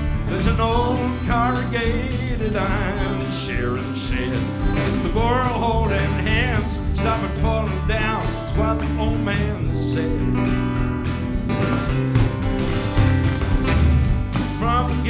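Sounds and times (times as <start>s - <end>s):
band playing country song: 0.0s - 15.0s
man and woman singing: 0.3s - 10.4s, 14.6s - 15.0s.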